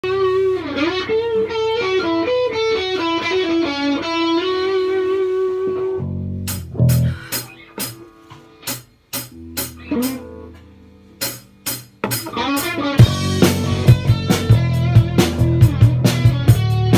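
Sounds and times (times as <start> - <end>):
electric guitar melody: 0.0 - 16.9
drum kit with cymbals: 6.4 - 16.9.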